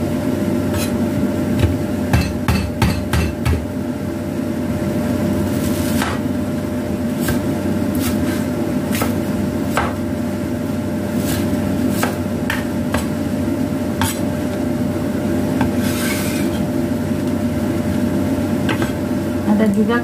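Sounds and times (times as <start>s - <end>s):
low background hum: 0.0s - 20.0s
cleaver chopping on wooden board: 9.7s - 10.0s.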